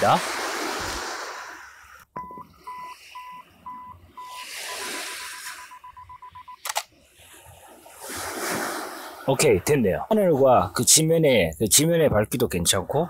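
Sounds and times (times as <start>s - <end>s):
faint surf: 0.0s - 13.0s
self-timer beeps: 2.2s - 6.6s
camera shutter double click: 6.6s - 6.9s.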